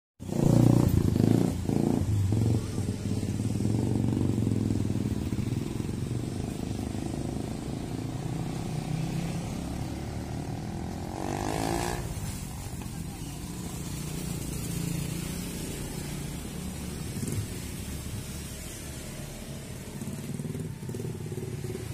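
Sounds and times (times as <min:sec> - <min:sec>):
scooters and motorcycles passing: 0:00.2 - 0:21.9.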